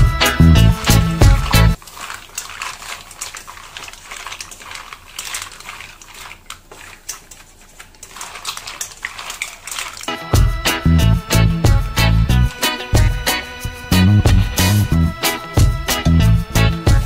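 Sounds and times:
background music: 0.0 - 1.8, 10.1 - 17.0
pan clicking and crackling: 0.2 - 10.8.

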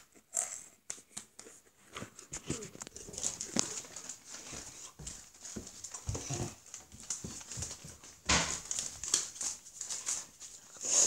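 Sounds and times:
footsteps down stairs: 2.4 - 10.5.

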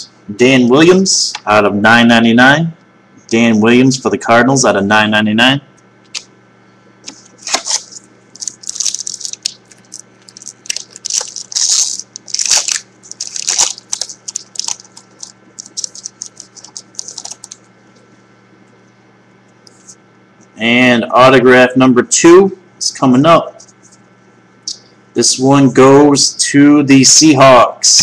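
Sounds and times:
wrapper crinkling and tearing: 7.1 - 17.6.

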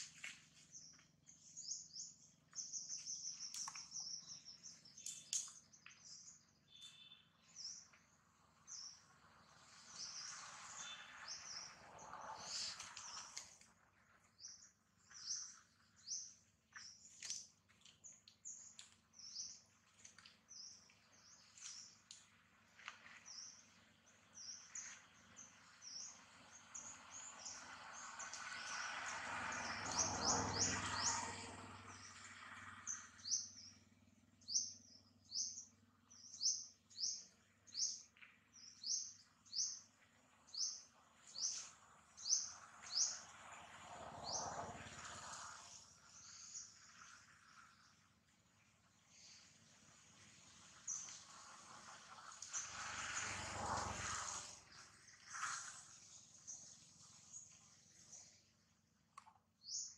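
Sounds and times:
bird chirping: 0.0 - 22.3.

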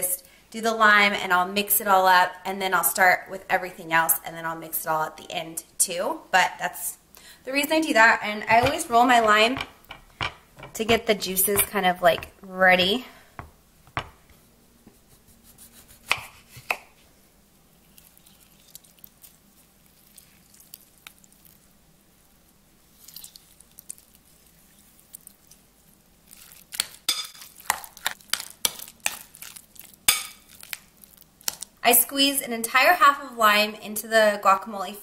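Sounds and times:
knife knocking on cutting board: 13.4 - 14.2
knife cutting lime: 15.0 - 16.9.

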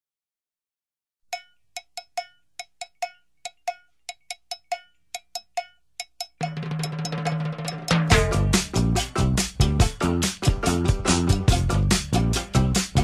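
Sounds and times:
pitched percussion hits: 1.4 - 13.0
backing track with bass and drums: 6.4 - 13.0.

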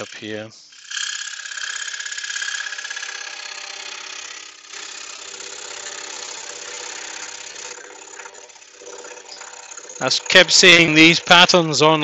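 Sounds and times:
scroll saw cutting wood: 0.0 - 12.0.

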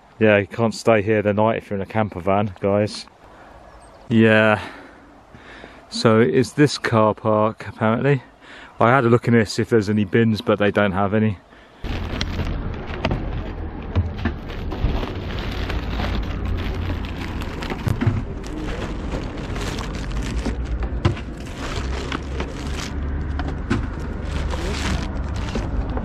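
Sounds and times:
plastic bag crinkling: 11.8 - 13.6, 14.3 - 26.0.

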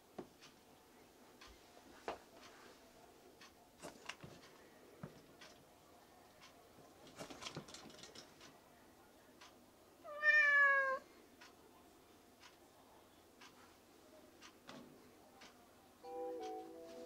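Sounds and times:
kitten meowing: 10.1 - 11.0.

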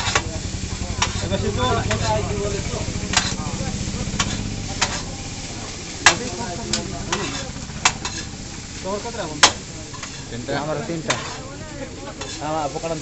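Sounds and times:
low steady rumble: 0.0 - 12.3
metal utensils clanking on wok: 0.0 - 13.0
noodles sizzling in a wok: 0.0 - 13.0.

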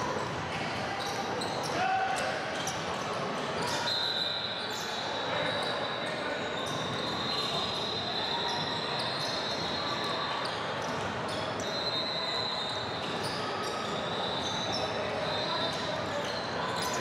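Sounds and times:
sneakers squeaking: 0.1 - 17.0.

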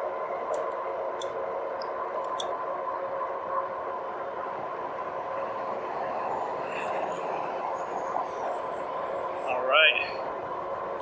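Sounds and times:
electric bike motor and tyre hum: 0.0 - 11.0
faint steady whine: 0.0 - 11.0.

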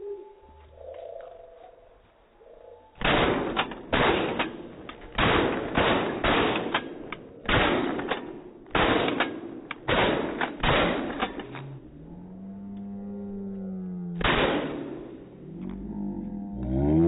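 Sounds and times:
shotgun blasts echoing: 3.0 - 11.5, 14.2 - 15.3.

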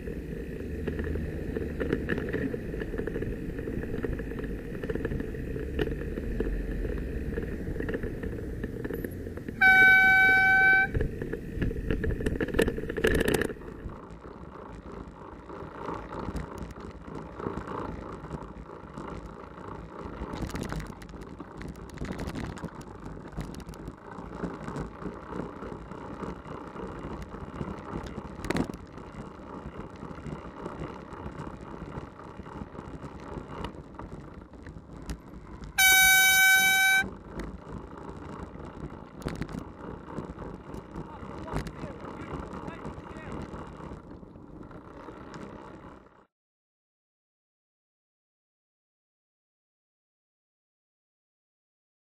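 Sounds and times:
road traffic: 0.0 - 46.3
horn blast: 9.6 - 11.0, 35.8 - 37.1.

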